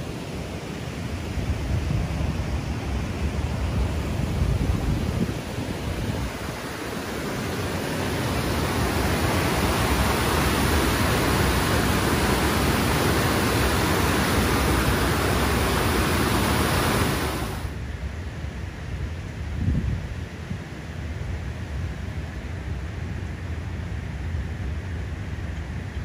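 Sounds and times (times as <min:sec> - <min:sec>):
water rushing in rapids: 0:00.0 - 0:17.8.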